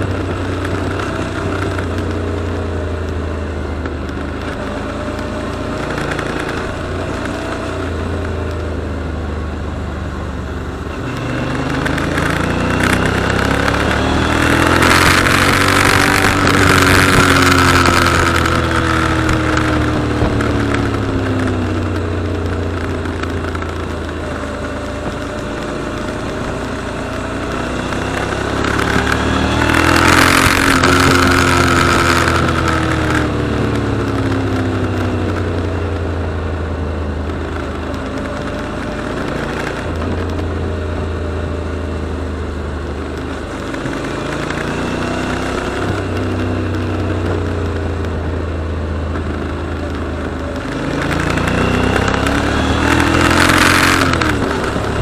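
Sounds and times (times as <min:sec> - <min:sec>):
motorcycle engine revving: 0:00.0 - 0:55.0
wind rush on microphone: 0:11.8 - 0:36.4, 0:49.0 - 0:55.0.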